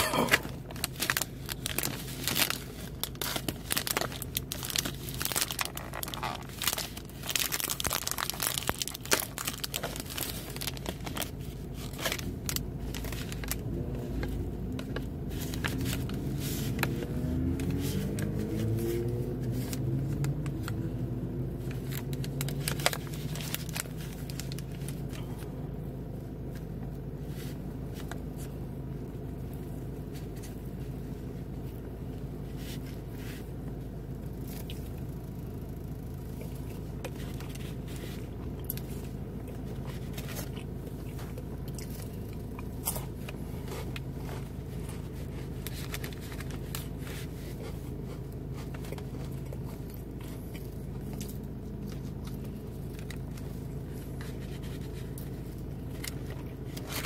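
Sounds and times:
plastic film crinkling: 0.3s - 20.8s, 21.6s - 25.2s, 36.7s - 57.0s
low hum sliding in pitch: 12.2s - 23.8s.

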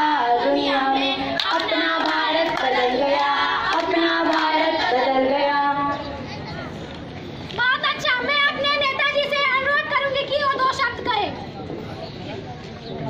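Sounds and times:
children singing: 0.0s - 5.8s
hand claps: 1.4s - 4.9s.

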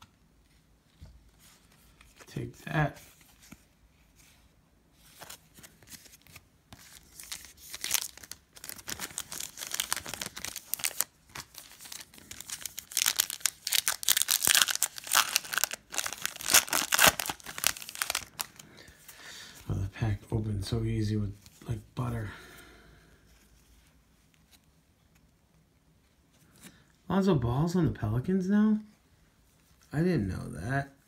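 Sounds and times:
foil wrapper tearing and crinkling: 6.8s - 18.6s.

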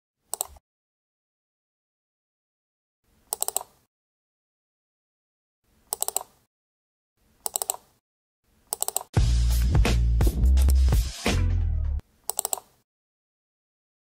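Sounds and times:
short pitched clicks: 0.3s - 0.6s, 3.3s - 3.9s, 5.9s - 6.5s, 7.4s - 8.0s, 8.7s - 9.1s, 12.3s - 12.8s
loud music with a beat: 9.2s - 12.0s.

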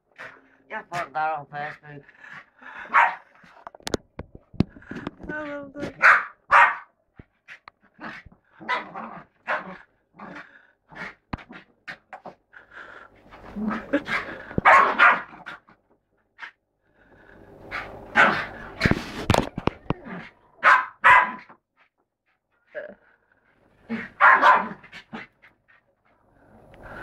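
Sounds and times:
dog barking: 2.9s - 3.3s, 6.0s - 7.0s, 8.6s - 9.7s, 14.6s - 15.3s, 20.6s - 21.5s, 24.0s - 24.8s.

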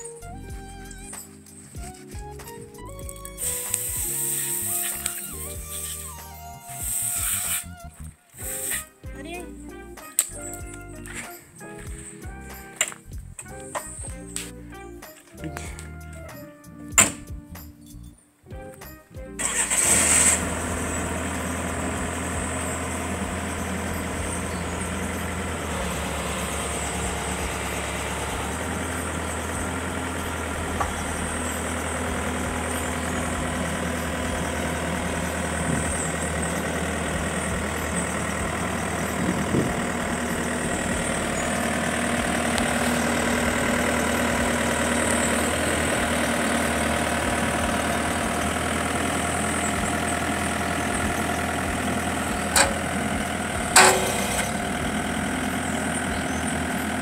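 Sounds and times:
diesel engine running: 0.0s - 16.3s, 19.4s - 57.0s
sharp knocks: 16.9s - 17.3s.

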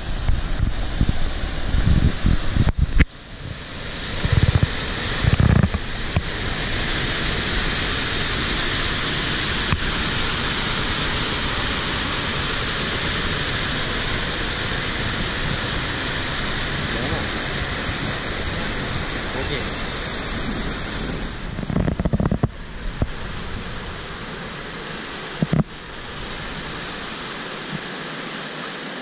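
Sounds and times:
wind buffeting microphone: 0.0s - 6.8s, 12.6s - 24.2s
waterfall rushing: 0.0s - 29.0s.

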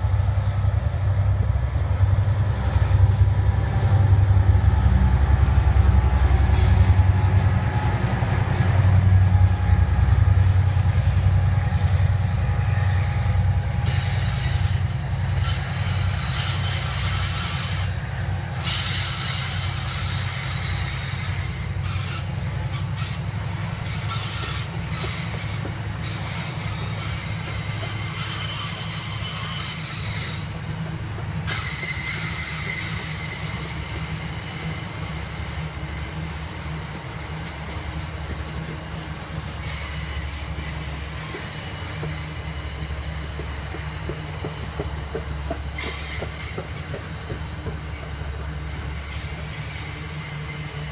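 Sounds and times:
train wheels rumbling on rail: 0.0s - 50.9s
high wheel squeals: 6.2s - 30.6s, 31.5s - 50.9s.

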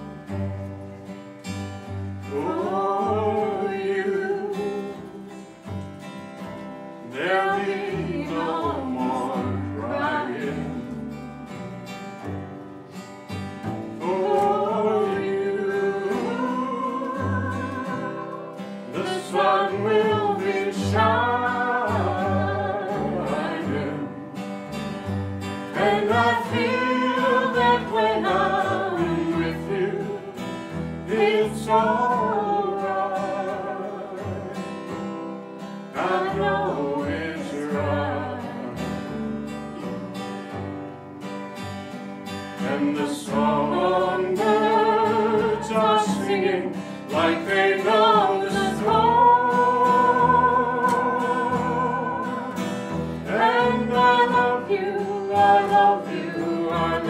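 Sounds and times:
acoustic guitar: 0.0s - 57.0s
woman singing slow ballad: 7.2s - 11.2s, 14.0s - 24.4s, 25.8s - 34.6s, 36.0s - 39.2s, 42.6s - 57.0s.

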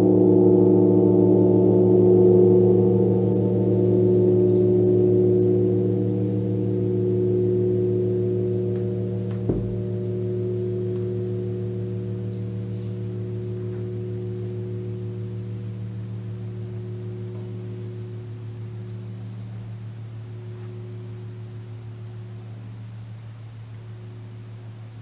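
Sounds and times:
gong ringing: 0.0s - 22.8s
brief knock: 9.3s - 9.9s.

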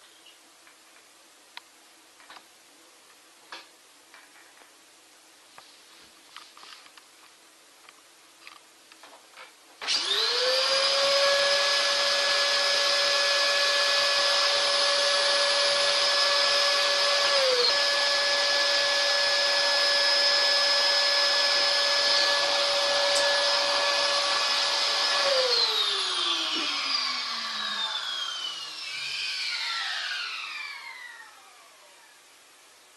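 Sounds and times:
vacuum cleaner whine: 9.8s - 32.3s.

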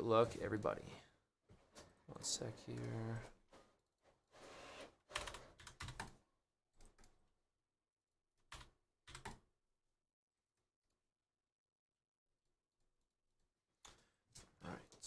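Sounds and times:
keyboard typing clicks: 8.5s - 9.4s.

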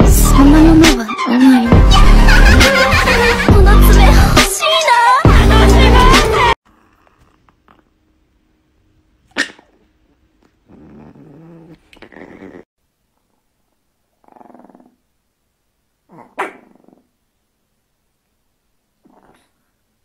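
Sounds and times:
small dog growling and snarling: 6.6s - 8.0s, 9.3s - 12.7s, 14.1s - 15.0s, 16.1s - 17.2s, 19.0s - 19.7s.

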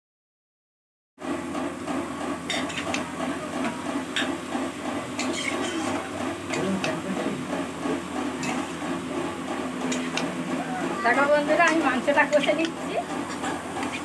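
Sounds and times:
oil sizzling: 3.9s - 6.6s, 7.6s - 14.0s
spatula scraping in pan: 5.1s - 6.0s, 8.3s - 8.8s.

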